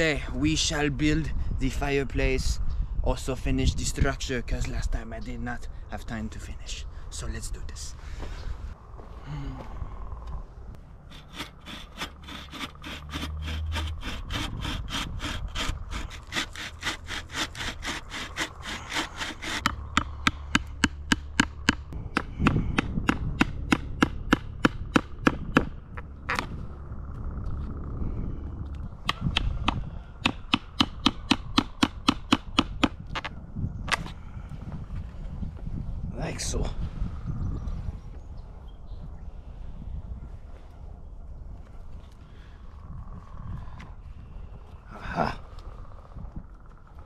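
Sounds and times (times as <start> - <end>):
hand saw cutting wood: 11.1 - 19.8.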